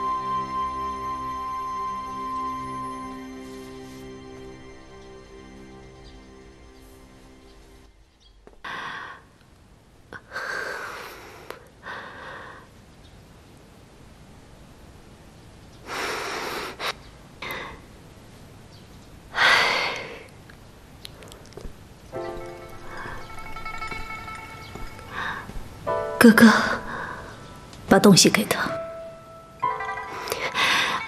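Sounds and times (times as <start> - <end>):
woman breathing heavily and sighing: 8.6 - 9.4, 10.2 - 12.7, 25.0 - 25.8, 26.4 - 27.6, 30.2 - 31.0.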